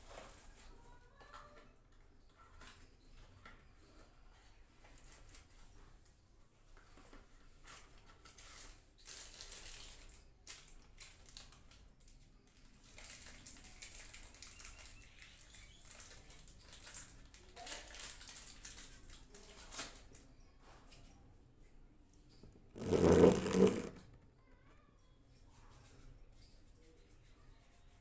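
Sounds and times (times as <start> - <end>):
rustling with small clicks: 4.8 - 21.2.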